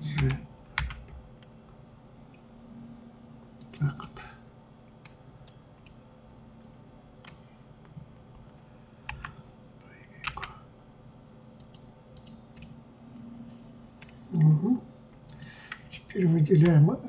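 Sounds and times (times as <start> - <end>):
faint steady hum: 0.0 - 17.0
keyboard and mouse clicks: 0.1 - 1.5, 8.4 - 9.4, 10.2 - 10.6, 11.6 - 12.8, 14.0 - 14.5, 15.2 - 16.0.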